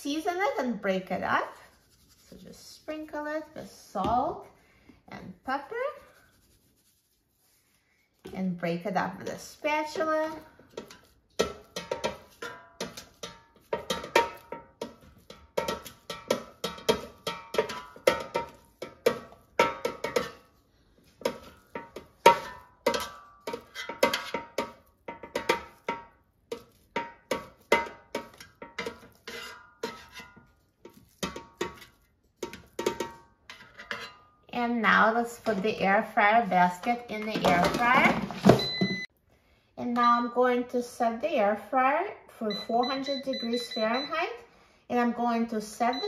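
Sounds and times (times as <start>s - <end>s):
spatula knocking metal basket: 10.3s - 20.5s, 21.2s - 34.3s.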